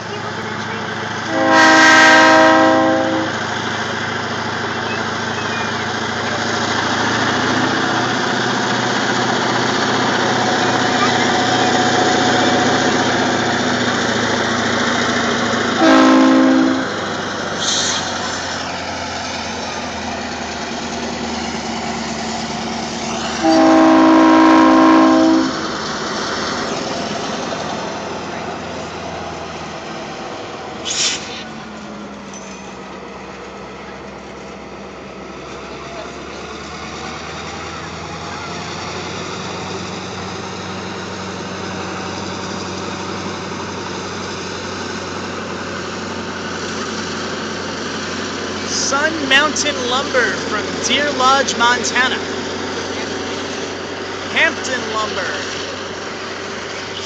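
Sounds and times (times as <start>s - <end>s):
engine rumbling: 0.0s - 54.4s
locomotive air horn: 1.3s - 3.4s, 15.8s - 17.9s, 23.4s - 25.8s.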